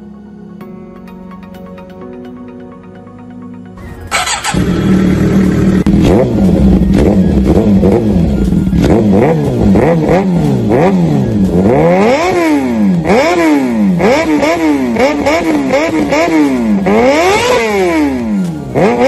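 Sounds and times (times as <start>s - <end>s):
motorcycle engine idling and revving: 3.8s - 19.0s.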